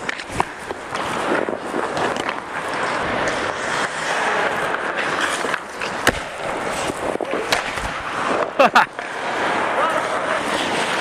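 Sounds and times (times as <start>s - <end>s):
skate blades scraping ice: 0.0s - 11.0s.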